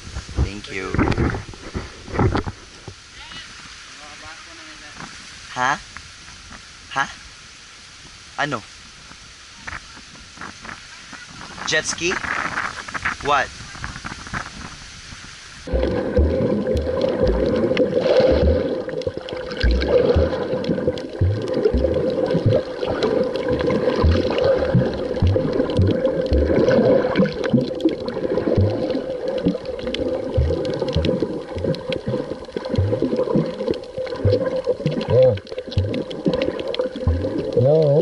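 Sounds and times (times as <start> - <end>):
muffled churning water: 0.0 - 38.0
low thumps: 15.7 - 27.8, 28.4 - 33.5, 34.1 - 38.0.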